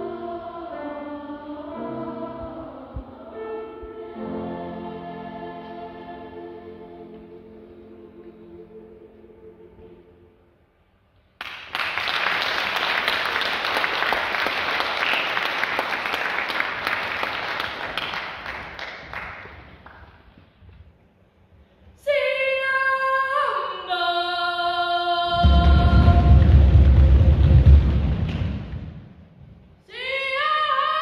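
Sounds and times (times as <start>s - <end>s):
voices singing held notes: 0.0s - 10.4s
audience applauding: 11.4s - 20.2s.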